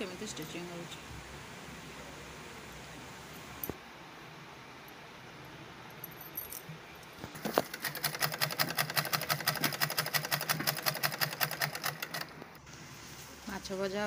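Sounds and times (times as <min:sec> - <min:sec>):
sewing machine stitching: 0:07.4 - 0:12.6.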